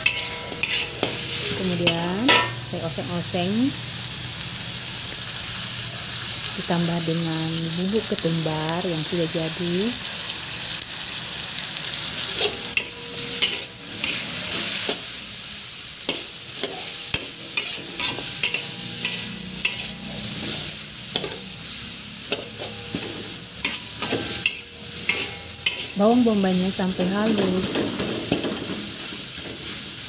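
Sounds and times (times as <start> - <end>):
metal spatula scraping pan: 0.0 - 2.6, 12.2 - 15.1, 16.1 - 26.4
onion sizzling in hot oil: 0.0 - 30.0.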